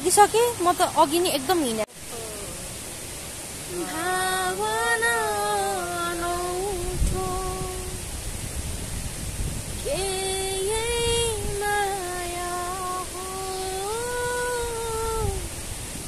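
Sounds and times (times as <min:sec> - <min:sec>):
woman singing long held notes: 0:03.7 - 0:08.1, 0:09.8 - 0:15.6.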